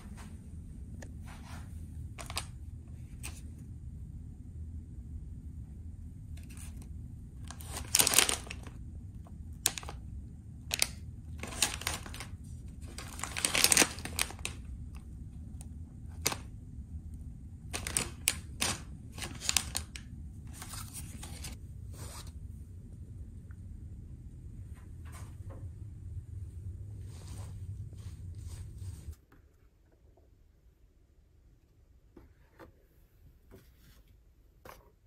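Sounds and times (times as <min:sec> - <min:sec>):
low room hum: 0:00.0 - 0:35.0
plastic packets crinkling: 0:02.2 - 0:02.6, 0:07.4 - 0:08.8, 0:09.5 - 0:10.0, 0:10.7 - 0:15.0, 0:16.2 - 0:16.5, 0:17.7 - 0:21.6.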